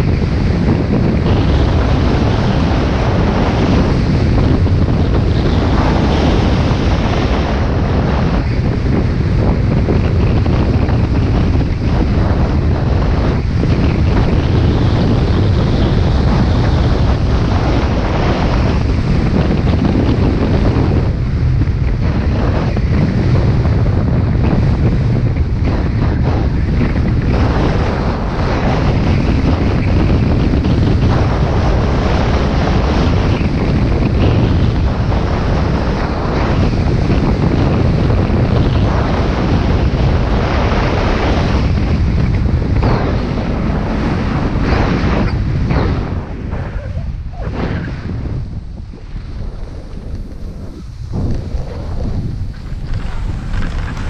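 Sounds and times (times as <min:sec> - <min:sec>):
wind buffeting microphone: 0:00.0 - 0:54.0
skis scraping over snow: 0:24.6 - 0:54.0.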